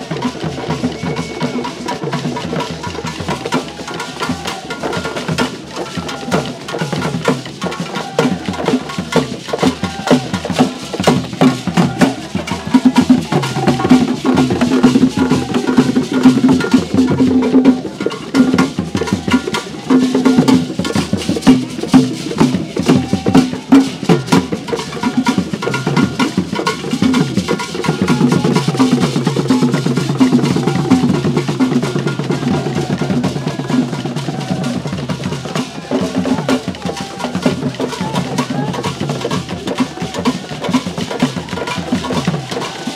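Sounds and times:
hand drums in fast rhythm: 0.0 - 42.9.

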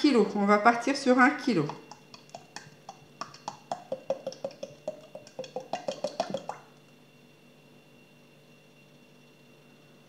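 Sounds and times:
oil glugging from bottle: 1.7 - 6.8.

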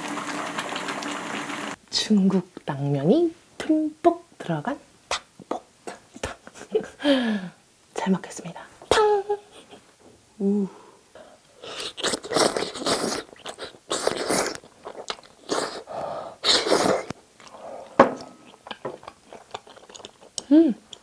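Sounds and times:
wet chewing: 11.7 - 15.8, 16.4 - 21.0
person slurping noodles: 11.7 - 17.9.

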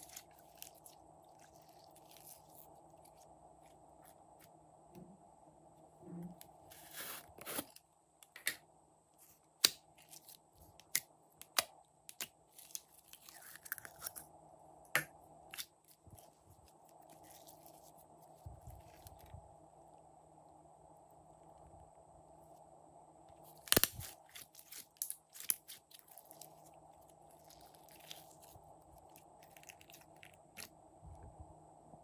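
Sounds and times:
faint steady hum: 0.0 - 32.0
rustling scrape: 6.7 - 7.7.

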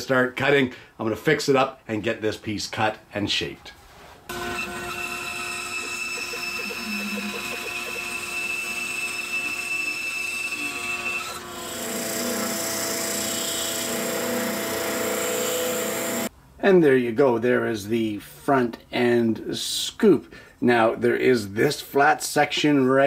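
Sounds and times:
bandsaw cutting wood: 4.3 - 16.3
drum sander running: 4.3 - 16.3.

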